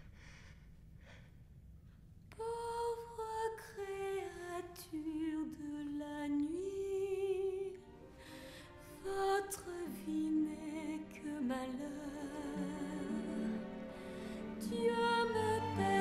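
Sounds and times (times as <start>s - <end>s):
woman singing with vibrato: 2.4s - 7.8s, 8.8s - 16.0s.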